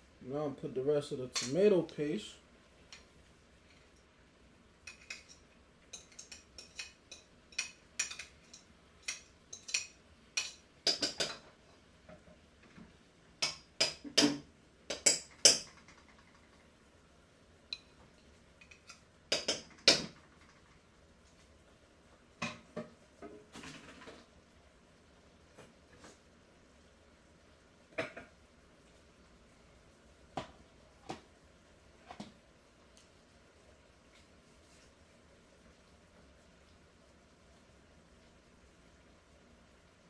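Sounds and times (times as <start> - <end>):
metal utensil clinking on pots: 1.3 - 1.7, 4.9 - 11.4.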